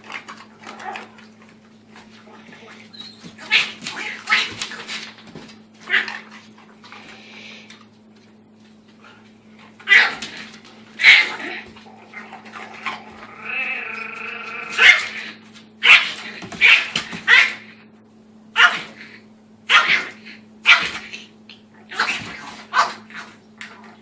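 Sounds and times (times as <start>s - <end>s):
puppy growling: 0.0s - 4.8s, 9.8s - 15.4s
puppy yapping: 9.8s - 10.4s, 12.8s - 17.8s, 19.7s - 21.2s.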